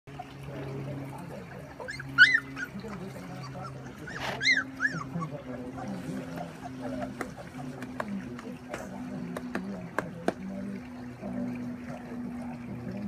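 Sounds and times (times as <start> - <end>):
steady low hum: 0.1 - 13.0
puppies whimpering yips: 1.7 - 7.1.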